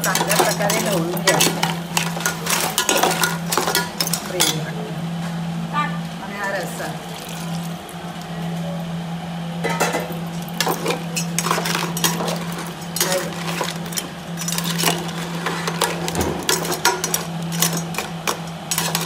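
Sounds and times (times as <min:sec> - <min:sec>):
skimmer scraping metal pot: 0:00.0 - 0:04.6, 0:09.7 - 0:19.0.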